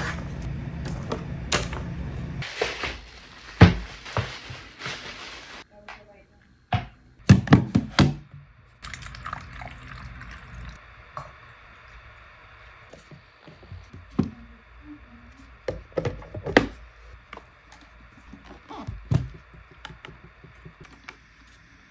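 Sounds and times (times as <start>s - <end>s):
water pouring into plastic tank: 8.8s - 10.8s.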